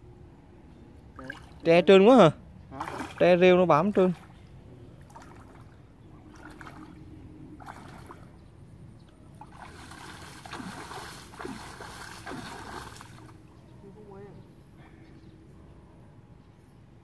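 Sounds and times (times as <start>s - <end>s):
water splashing around wading legs: 2.8s - 8.4s, 9.2s - 13.4s.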